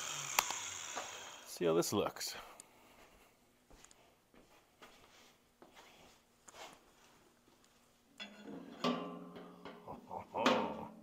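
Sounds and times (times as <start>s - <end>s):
metal frame knocking and scraping: 8.2s - 9.9s.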